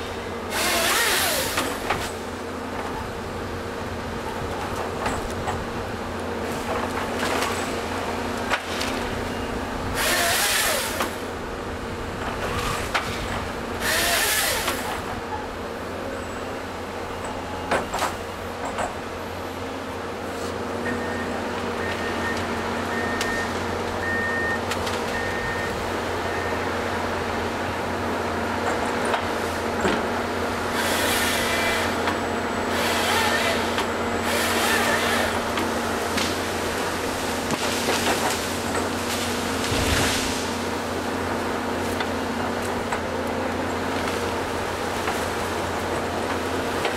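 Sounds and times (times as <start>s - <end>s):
excavator diesel engine and hydraulics: 0.0s - 46.9s
saw hissing through wood: 10.0s - 11.2s, 13.8s - 14.9s, 30.7s - 32.0s, 32.8s - 35.5s.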